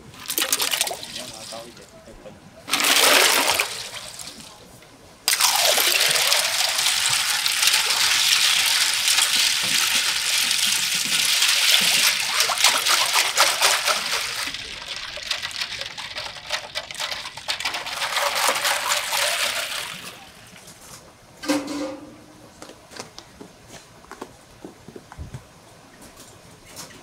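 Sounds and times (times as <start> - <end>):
liquid sloshing and trickling: 0.0 - 1.9, 2.6 - 20.8
ice clinking against metal pot: 5.3 - 20.6.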